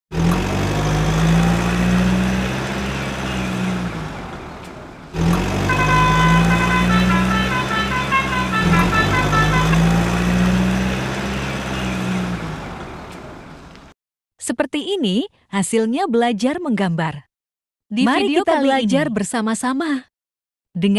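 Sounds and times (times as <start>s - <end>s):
truck air horn melody: 5.6s - 12.0s.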